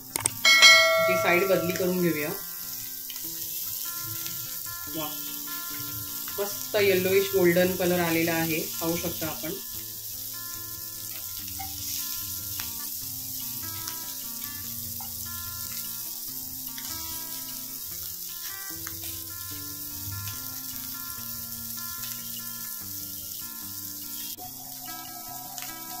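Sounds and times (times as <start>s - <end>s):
fish sizzling in hot oil: 0.0s - 26.0s
soft background music: 0.1s - 26.0s.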